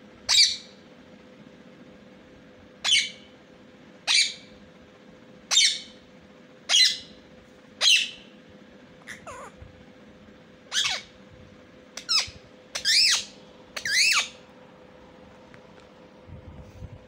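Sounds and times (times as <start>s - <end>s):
parakeet squawks: 0.3s - 0.7s, 2.8s - 3.3s, 4.0s - 4.5s, 5.5s - 6.0s, 6.7s - 7.2s, 7.8s - 8.2s, 9.0s - 9.6s, 10.7s - 11.2s, 12.0s - 14.4s.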